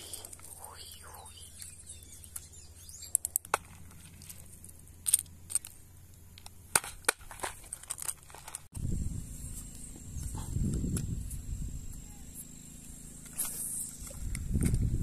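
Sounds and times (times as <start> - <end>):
low rumbling noise: 8.7 - 15.0.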